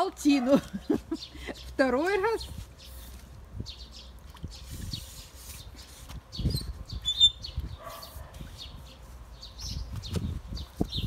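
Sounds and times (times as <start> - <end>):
small birds chirping: 0.6 - 11.0.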